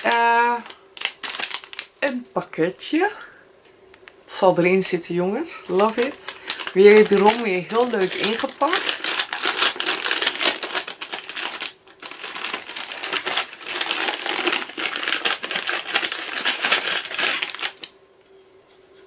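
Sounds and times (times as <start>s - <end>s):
gift wrapping crinkling: 0.0s - 2.2s, 5.6s - 17.9s.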